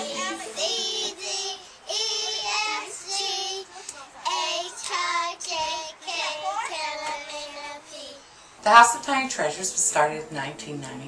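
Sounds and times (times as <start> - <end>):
young children singing: 0.0 - 8.3.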